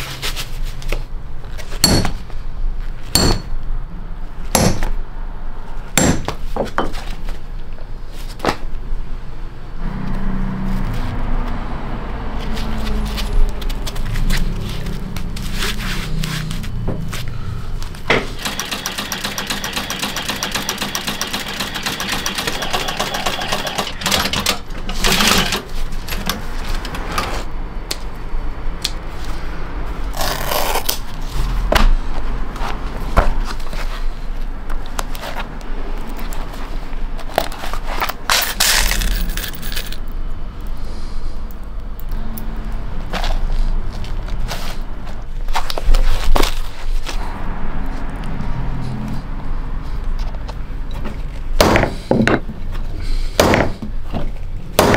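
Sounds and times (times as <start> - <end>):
low motor hum: 9.8 - 18.2
sewing machine needle ticking: 18.4 - 24.2
clicks and scrapes on leather: 30.1 - 31.2.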